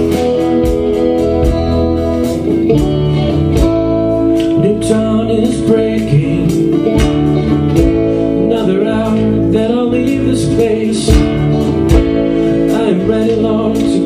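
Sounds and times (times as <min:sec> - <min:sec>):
drum hits: 0:00.0 - 0:04.7, 0:06.1 - 0:08.2, 0:11.0 - 0:12.5
live band playing: 0:00.0 - 0:14.0
strummed guitars: 0:00.0 - 0:14.0.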